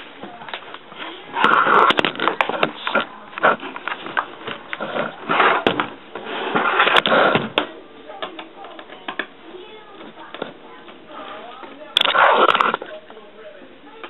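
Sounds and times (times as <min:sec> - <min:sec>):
camera rubbing against fabric: 0:01.0 - 0:07.4, 0:12.0 - 0:12.9.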